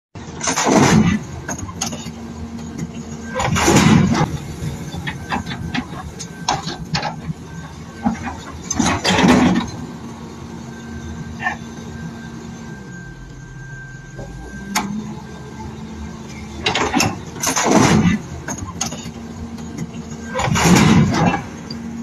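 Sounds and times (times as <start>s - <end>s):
excavator diesel engine running: 0.2s - 22.0s.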